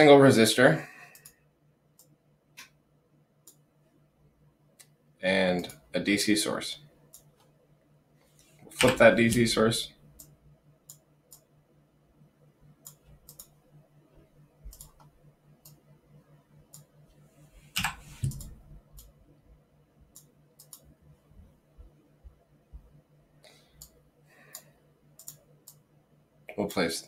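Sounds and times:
faint low hum: 0:00.0 - 0:27.0
computer mouse clicking: 0:01.1 - 0:01.4, 0:03.4 - 0:03.6, 0:07.0 - 0:07.5, 0:08.4 - 0:09.1, 0:10.2 - 0:11.5, 0:12.8 - 0:13.6, 0:14.6 - 0:15.8, 0:16.7 - 0:17.0, 0:17.7 - 0:19.2, 0:20.1 - 0:20.9, 0:23.7 - 0:25.9.

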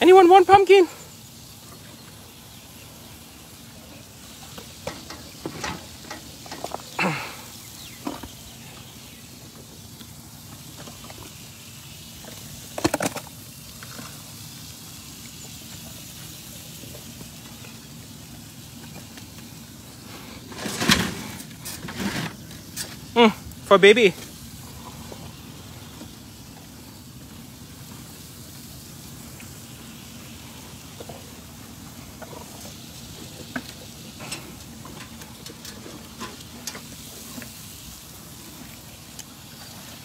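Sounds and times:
steady low hiss: 0:00.0 - 0:40.0.

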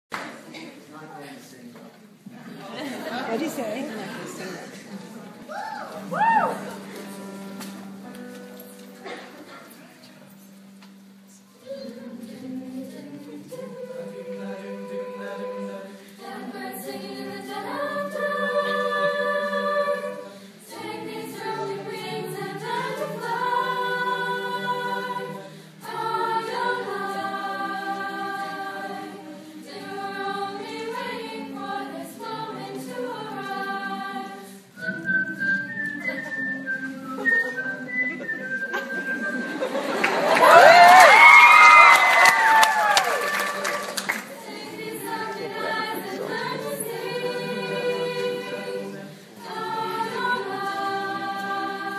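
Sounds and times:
choir singing: 0:10.4 - 0:51.9.

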